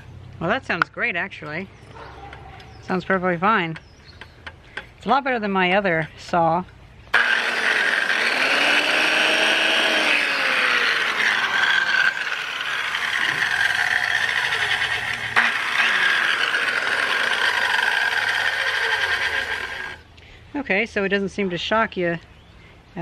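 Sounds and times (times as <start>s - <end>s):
circular saw motor whine: 7.2s - 20.0s.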